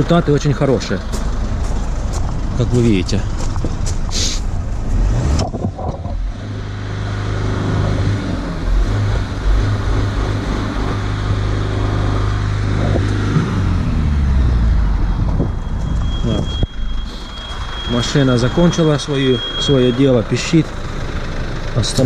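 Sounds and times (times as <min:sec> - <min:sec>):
diesel engine idling: 0:00.0 - 0:05.2, 0:06.2 - 0:22.0
steady high beep: 0:14.4 - 0:20.8.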